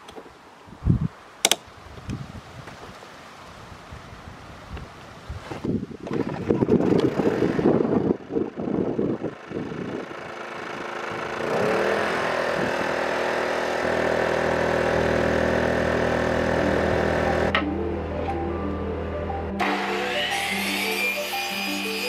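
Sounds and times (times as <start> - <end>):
generator engine starting and running: 6.2 - 22.0.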